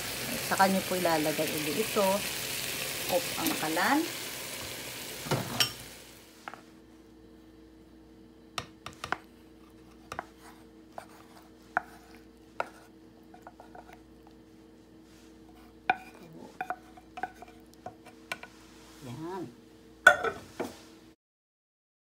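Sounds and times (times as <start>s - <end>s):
sizzling in frying pan: 0.0s - 6.4s
wooden spatula knocking and scraping: 8.6s - 14.0s, 15.5s - 18.6s.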